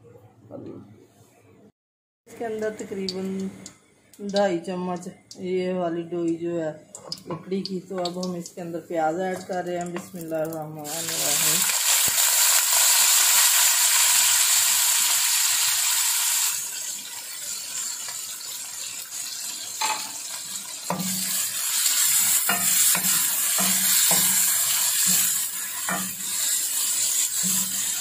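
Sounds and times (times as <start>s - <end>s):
onions sizzling in hot oil: 7.2s - 28.0s.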